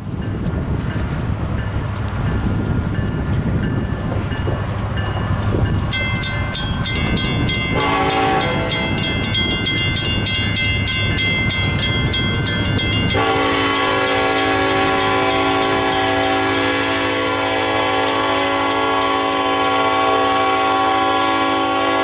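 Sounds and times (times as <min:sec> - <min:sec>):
crossing bells ringing: 0:03.0 - 0:22.0
multi-note train horn: 0:07.7 - 0:09.1, 0:13.1 - 0:22.0.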